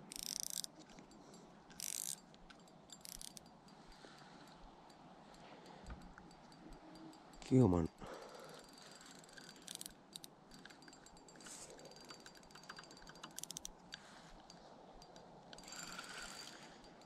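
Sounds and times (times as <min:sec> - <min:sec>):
fishing reel clicking: 0:00.0 - 0:00.8, 0:01.7 - 0:05.4, 0:08.1 - 0:17.0.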